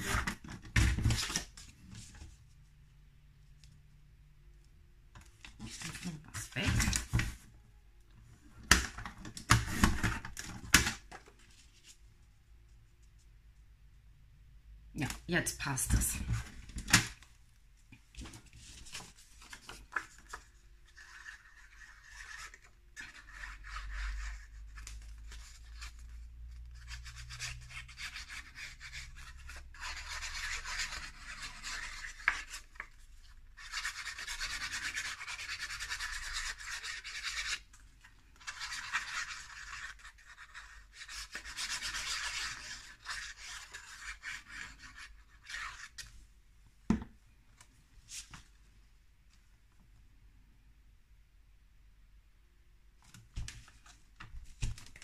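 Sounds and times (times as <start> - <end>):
paper rustling under hands: 18.1 - 27.0, 47.6 - 48.6, 53.0 - 55.0.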